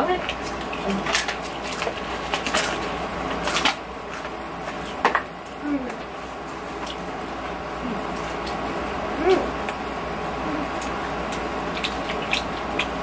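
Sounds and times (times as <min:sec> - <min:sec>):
potato crisps crunching: 0:00.0 - 0:05.0.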